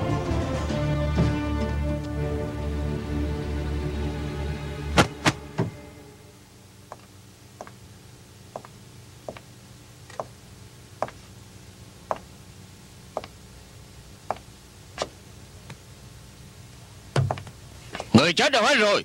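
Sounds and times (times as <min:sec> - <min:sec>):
faint low hum: 0:00.0 - 0:19.0
slow footsteps: 0:06.8 - 0:07.8, 0:08.5 - 0:10.4, 0:11.0 - 0:11.4, 0:12.0 - 0:12.4, 0:13.1 - 0:13.4, 0:14.2 - 0:15.8.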